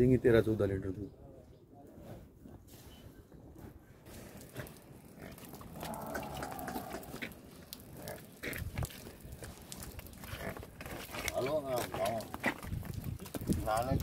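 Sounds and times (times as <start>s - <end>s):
water buffalo calling: 5.3s - 8.2s.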